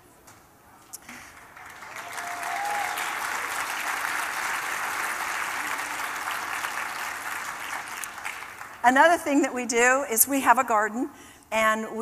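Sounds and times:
audience applauding: 0:01.1 - 0:09.2
high call from crowd: 0:01.8 - 0:07.1.

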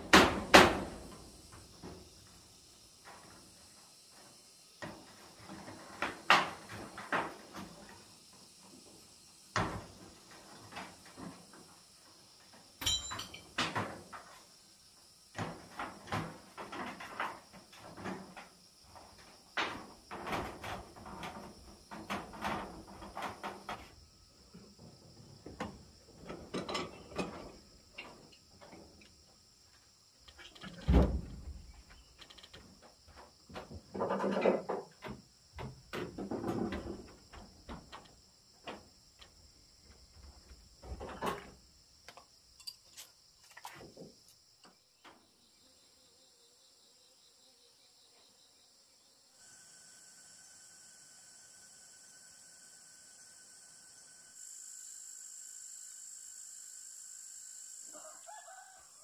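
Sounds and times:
knocks on corrugated iron roof: 0:00.0 - 0:01.1.

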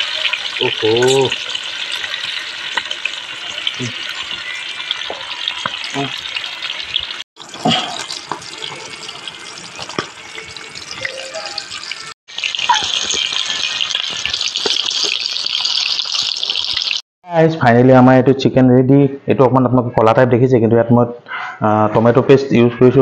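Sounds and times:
chicken frying in hot oil: 0:00.0 - 0:17.0.

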